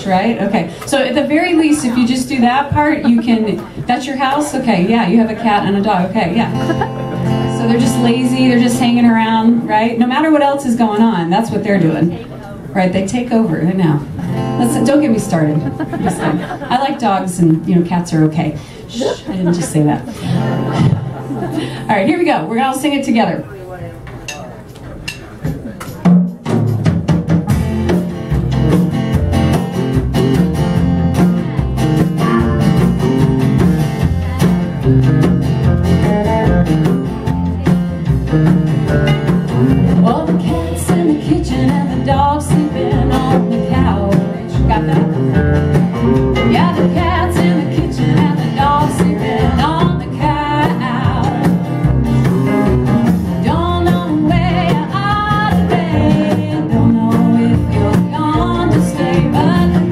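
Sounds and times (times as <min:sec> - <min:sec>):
acoustic guitar: 0:00.0 - 0:59.9
woman singing: 0:07.5 - 0:12.0, 0:39.9 - 0:45.4, 0:46.4 - 0:51.9, 0:53.4 - 0:59.9.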